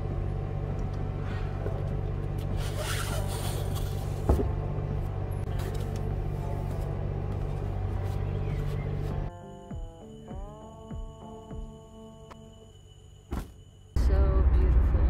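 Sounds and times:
vehicle engine idling: 0.0 - 9.3.

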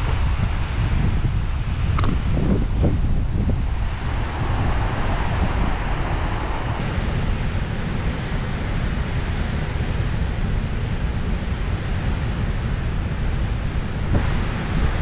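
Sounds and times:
wind buffeting microphone: 0.0 - 15.0
waterfall rushing: 3.6 - 9.7.

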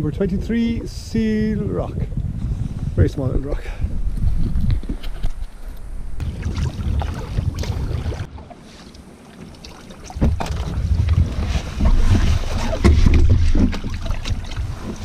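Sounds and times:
wind buffeting microphone: 0.0 - 9.1, 10.0 - 15.0
water slopping and splashing: 6.2 - 15.0.

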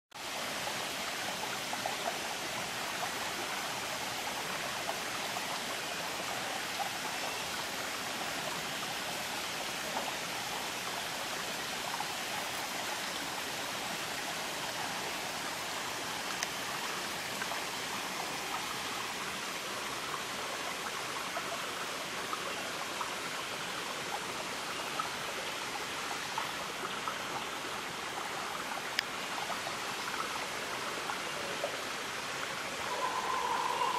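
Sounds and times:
faint ticks: 16.2 - 16.6, 28.9 - 29.2.

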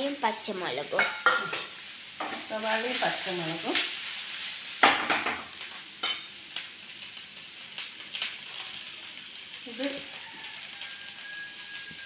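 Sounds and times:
onions sizzling in hot oil: 0.0 - 12.0
spoon scraping a pan: 1.0 - 2.6, 4.0 - 6.4.

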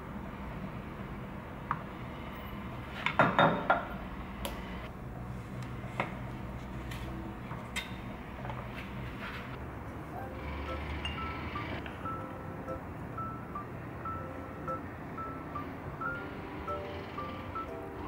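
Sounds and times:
tableware knocking and clinking: 3.2 - 3.9.

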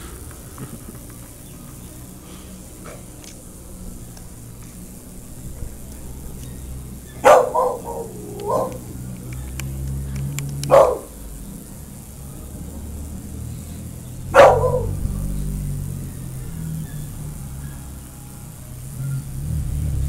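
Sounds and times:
dog yelping: 7.1 - 8.9, 10.7 - 11.1, 14.3 - 15.0
dog barking: 7.1 - 9.6, 10.6 - 11.2, 14.3 - 15.1.

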